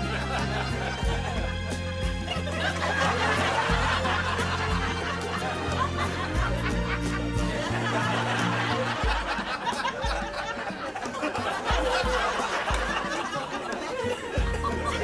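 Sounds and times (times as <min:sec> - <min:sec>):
people laughing: 0:00.0 - 0:15.0.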